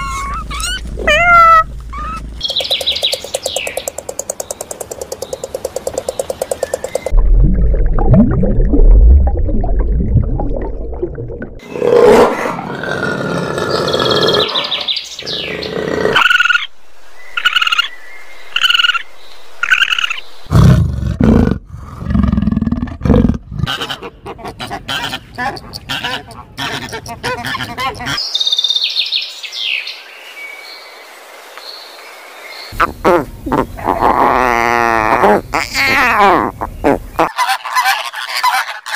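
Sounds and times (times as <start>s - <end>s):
deep animal call: 32.8s - 37.4s.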